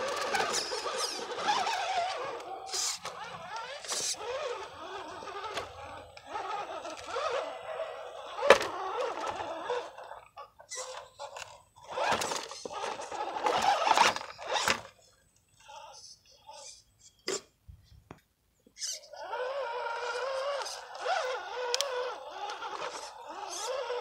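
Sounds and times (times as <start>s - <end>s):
tyres scraping on rock: 0.0s - 7.5s
rc truck motor whining: 0.0s - 16.8s, 18.8s - 24.0s.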